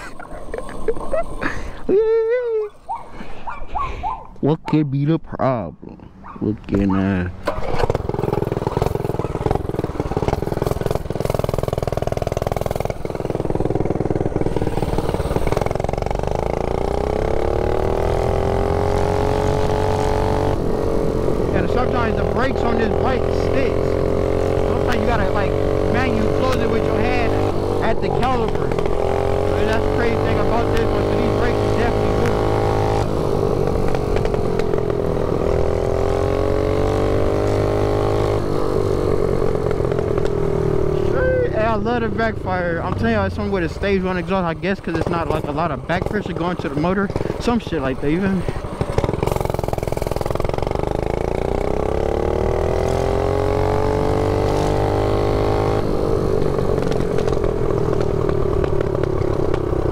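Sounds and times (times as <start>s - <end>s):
mini bike engine revving: 0.0s - 4.2s, 6.8s - 59.9s
exhaust pops: 7.4s - 16.7s, 23.9s - 35.9s, 39.4s - 40.5s, 41.8s - 51.8s, 56.2s - 59.9s.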